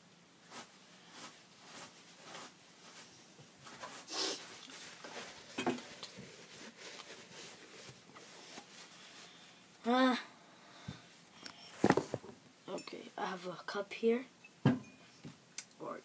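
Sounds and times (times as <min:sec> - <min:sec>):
paper tissues rustling: 0:00.5 - 0:09.5.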